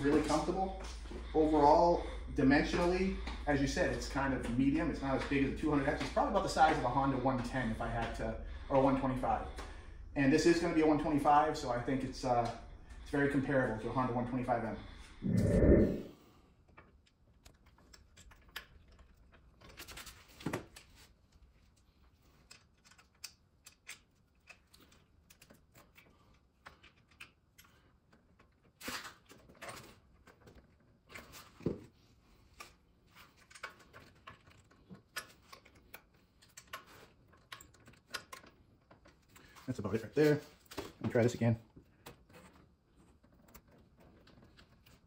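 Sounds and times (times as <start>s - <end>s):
clicks of small parts handled: 22.1s - 30.6s.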